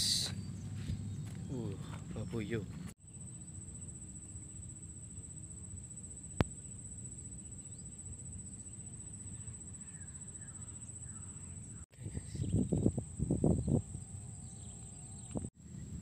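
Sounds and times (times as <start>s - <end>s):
low wind rumble: 0.0s - 3.0s, 11.7s - 16.0s
high-pitched insect whine: 0.0s - 16.0s.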